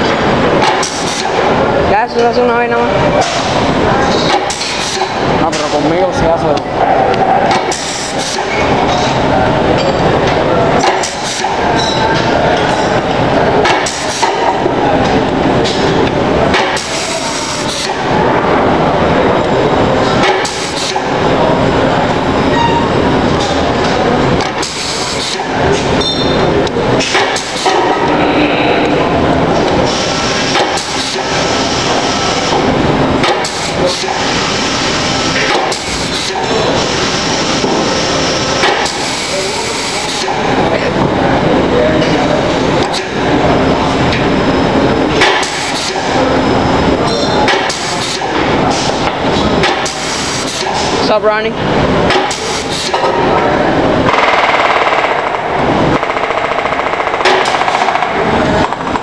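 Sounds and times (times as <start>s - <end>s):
loud machine noise: 0.0s - 59.0s
pneumatic rivet gun hammering: 56.0s - 58.1s.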